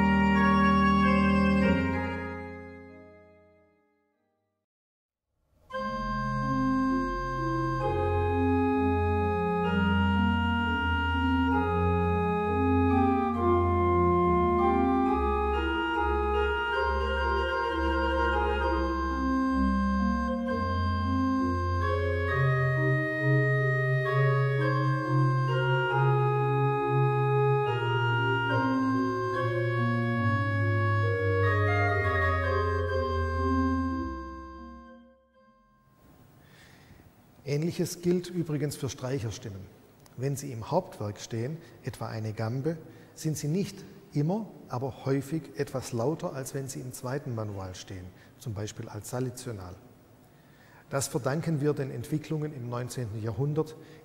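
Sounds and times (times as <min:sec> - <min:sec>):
organ pedal bass line: 0:00.0 - 0:03.4, 0:05.7 - 0:35.9
pipe organ solo melody: 0:00.0 - 0:03.8, 0:05.7 - 0:36.9, 0:37.6 - 0:49.8, 0:50.5 - 0:54.0.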